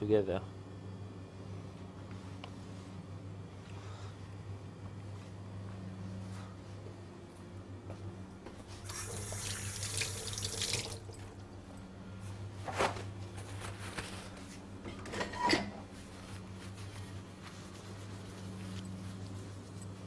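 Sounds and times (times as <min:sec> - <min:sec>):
steady low hum: 0:00.0 - 0:20.0
water running from tap: 0:08.8 - 0:11.4.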